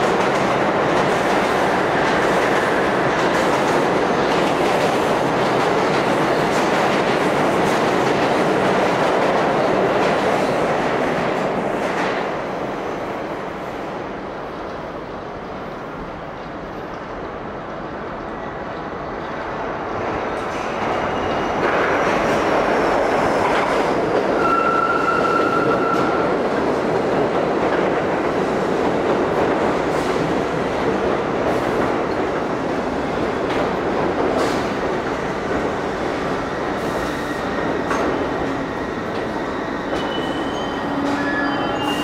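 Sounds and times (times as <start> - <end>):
subway train wheels rumbling: 0.0 - 42.0
high wheel squeal: 24.4 - 26.2, 40.0 - 42.0.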